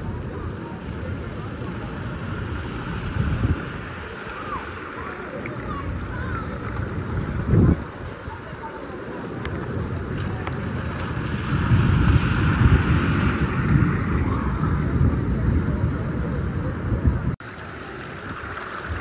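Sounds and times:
floodwater running: 0.0s - 16.1s, 17.4s - 19.0s
wind buffeting microphone: 0.0s - 19.0s
car splashing through water: 9.2s - 14.6s, 17.4s - 19.0s.

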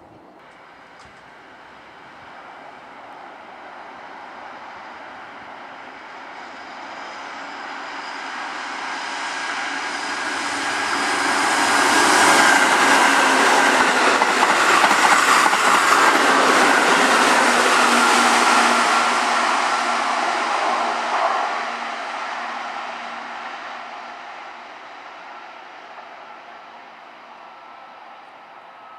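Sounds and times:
electric train passing: 0.0s - 28.9s
train wheel clatter: 11.3s - 21.4s.

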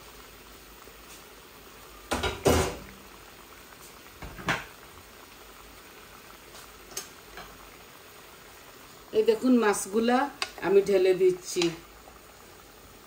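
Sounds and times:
curry bubbling in a pan: 0.0s - 13.0s
kitchenware clattering: 2.1s - 2.9s.

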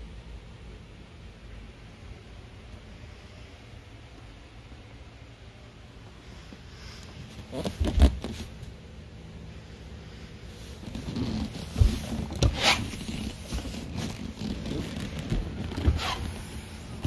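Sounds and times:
faint steady hum: 0.0s - 17.0s
zip-like scraping rasp: 10.9s - 16.5s.

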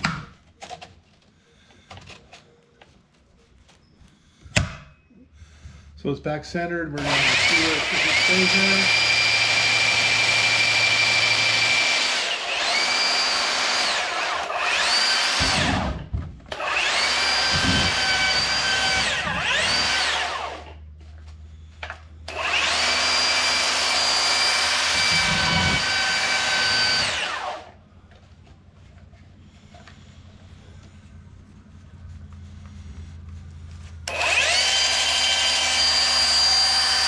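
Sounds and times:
belt sander whining: 6.9s - 20.9s, 21.8s - 28.3s, 32.2s - 37.0s.

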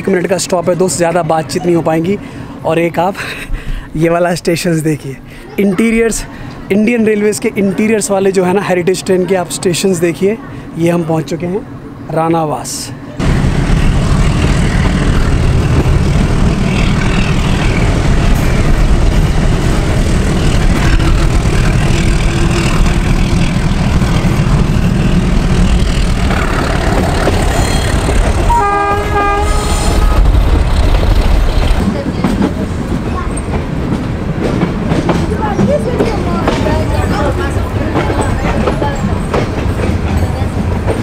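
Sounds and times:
train wheels rumbling on track: 5.8s - 41.0s
train horn: 28.5s - 30.4s.

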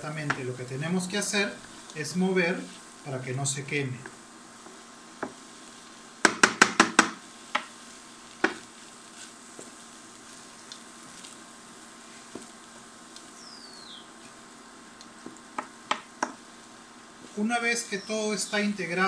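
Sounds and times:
faint sizzle: 0.0s - 19.0s
wooden spoon knocking metal wok: 4.0s - 5.4s, 6.2s - 7.8s, 8.4s - 8.7s, 15.2s - 16.4s.

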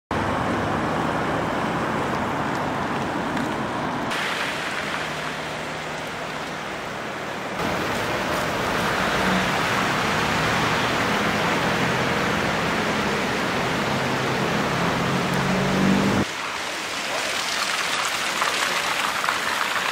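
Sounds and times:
tyres hissing on wet road: 0.6s - 19.9s.

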